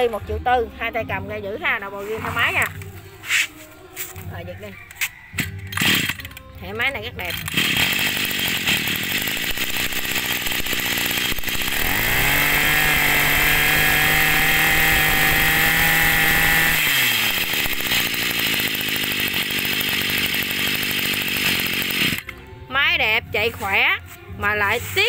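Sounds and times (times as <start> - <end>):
brush cutter engine revving: 1.8 - 22.5.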